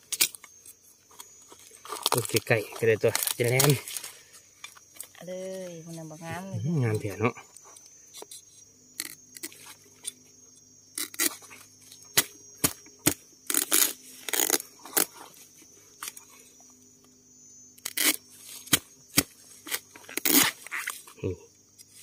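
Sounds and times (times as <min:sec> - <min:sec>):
bamboo cracking and snapping: 0:00.0 - 0:05.2, 0:09.0 - 0:09.7, 0:10.9 - 0:15.2, 0:17.8 - 0:21.2.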